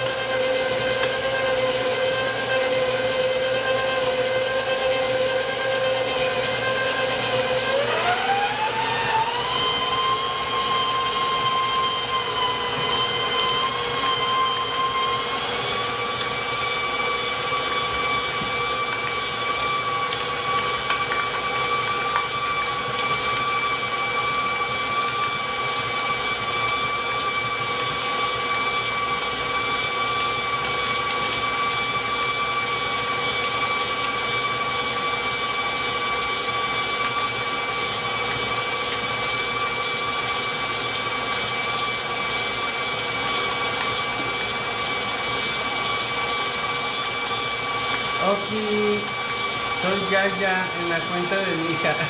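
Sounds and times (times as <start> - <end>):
stand mixer motor whine: 0.0 - 52.0.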